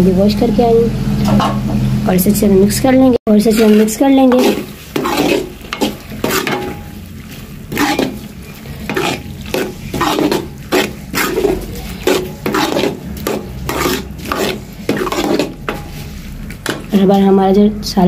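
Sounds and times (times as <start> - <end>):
ladle scraping a metal pan: 3.4 - 17.0
curry sizzling in a pan: 3.5 - 17.1.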